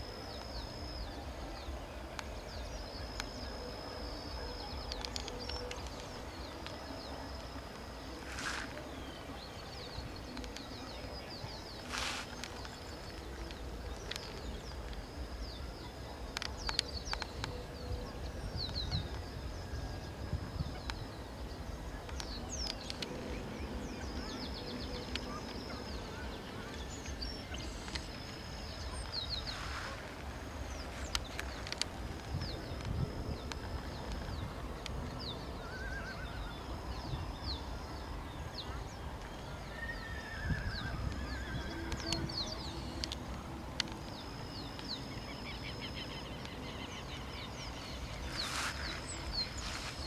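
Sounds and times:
hissing wind gusts: 0:00.0 - 0:50.0
wind rumble on microphone: 0:00.0 - 0:50.0.

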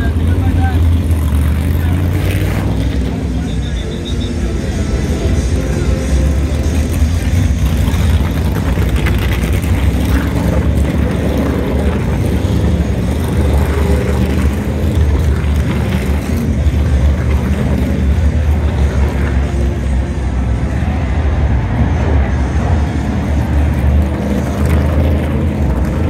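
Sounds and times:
race car engines droning: 0:00.0 - 0:26.0.

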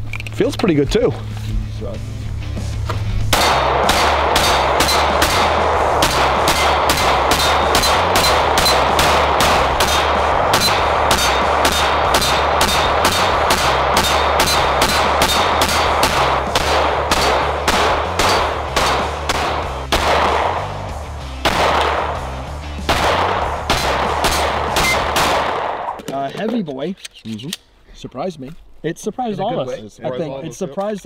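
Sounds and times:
background music: 0:00.0 - 0:26.0
rapid pistol fire: 0:03.3 - 0:26.0.

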